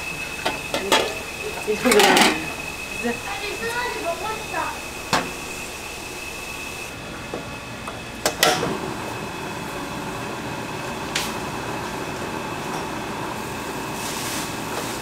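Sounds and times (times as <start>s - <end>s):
constant hum with high whine: 0.0s - 15.0s
gas burner hiss: 0.0s - 15.0s
gas burner metallic clicks: 8.2s - 8.7s.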